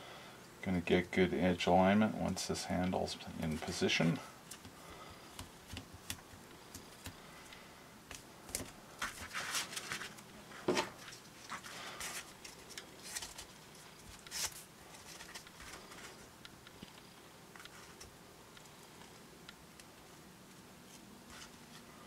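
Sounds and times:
rustles and scrapes: 0:08.5 - 0:18.1, 0:20.8 - 0:22.0.

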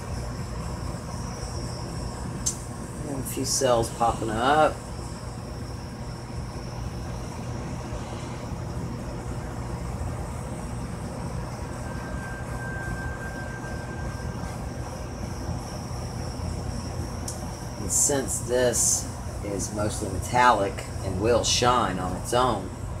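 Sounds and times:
faint thin whistle: 0:11.8 - 0:14.8.

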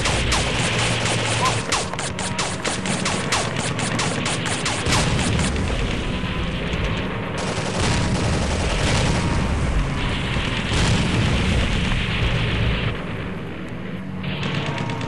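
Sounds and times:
paintball gunfire: 0:00.0 - 0:12.4
dense rumbling noise: 0:04.0 - 0:14.0.

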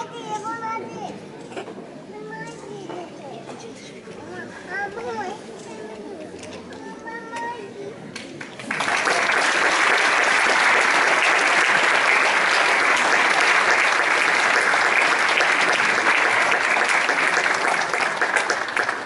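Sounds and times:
audience applauding: 0:08.4 - 0:19.0.

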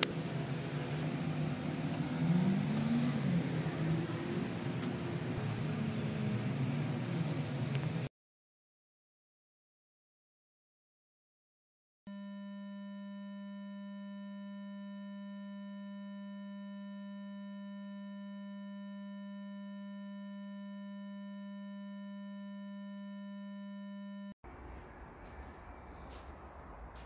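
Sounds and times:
electronic hum: 0:12.1 - 0:24.4.

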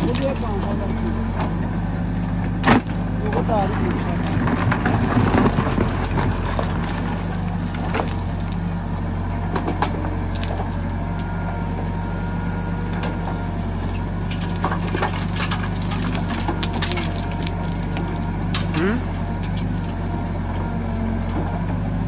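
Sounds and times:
diesel engine running under load: 0:00.0 - 0:22.0
stones clattering against bucket: 0:02.6 - 0:08.6, 0:14.3 - 0:18.8.

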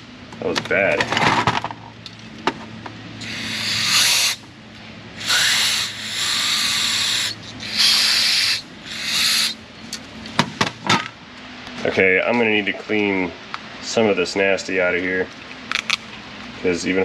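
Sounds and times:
aerosol spray hissing: 0:03.2 - 0:04.4, 0:05.2 - 0:09.6.

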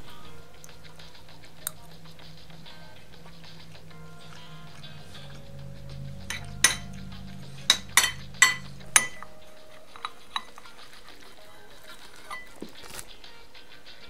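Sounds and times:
background music: 0:00.0 - 0:14.0
cutlery clinking against dish: 0:10.0 - 0:13.1.

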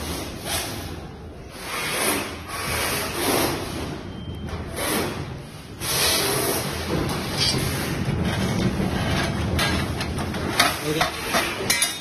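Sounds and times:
hands rubbing and scraping wires: 0:05.9 - 0:11.8.

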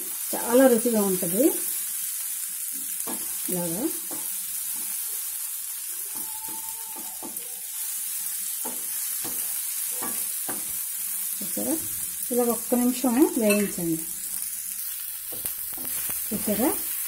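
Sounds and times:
vegetables sizzling in a frying pan: 0:00.0 - 0:17.0
spatula scraping a pan: 0:14.3 - 0:17.0.

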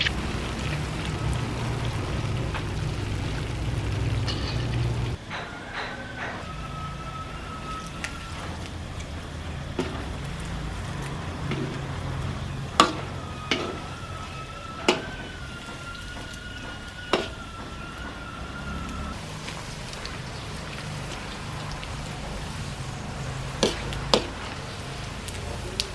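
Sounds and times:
low steady rumble: 0:00.0 - 0:05.2
high whistling tone: 0:05.2 - 0:09.6, 0:12.4 - 0:19.2.

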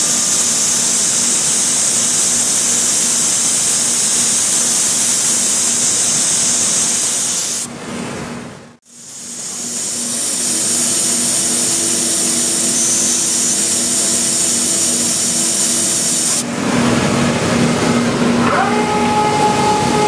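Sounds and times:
high hiss: 0:00.0 - 0:07.7, 0:08.9 - 0:16.5
cnc router running: 0:09.1 - 0:20.0.

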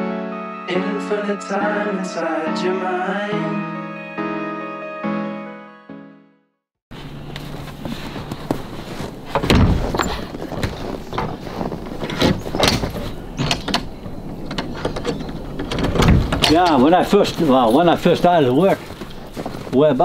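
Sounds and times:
door latch clacking: 0:12.6 - 0:16.9.

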